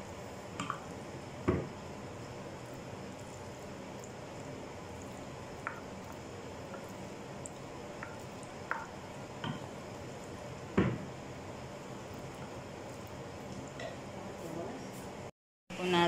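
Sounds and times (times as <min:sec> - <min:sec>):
spatula stirring and squishing macaroni: 0:00.0 - 0:15.2
spatula tapping baking dish: 0:05.6 - 0:05.9, 0:08.0 - 0:09.7
knock on baking dish: 0:10.8 - 0:11.0.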